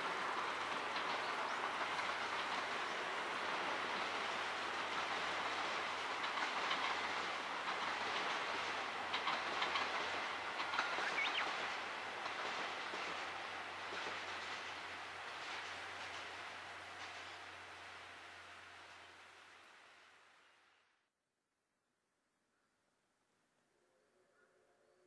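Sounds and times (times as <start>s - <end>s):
train wheels clattering over rail joints: 0.0s - 17.5s.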